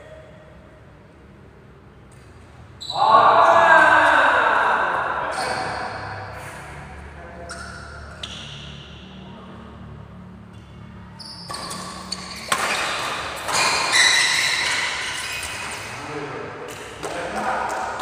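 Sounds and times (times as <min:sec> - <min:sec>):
racket striking shuttlecock: 0:11.4 - 0:15.8.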